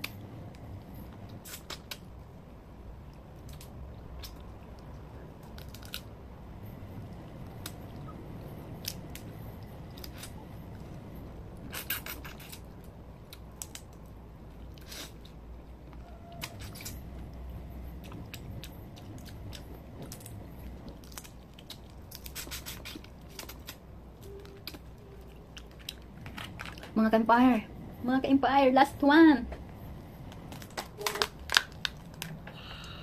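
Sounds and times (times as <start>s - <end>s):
low steady hum: 0.0s - 33.0s
chewing: 3.1s - 6.1s, 6.7s - 26.9s
crab shells cracking: 5.4s - 6.1s, 30.5s - 32.4s.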